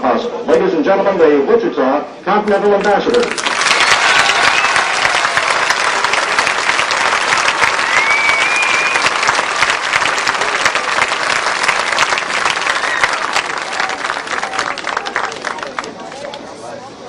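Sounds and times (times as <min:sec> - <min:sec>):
crowd applauding: 0:02.8 - 0:16.6
single whistle: 0:07.8 - 0:09.1.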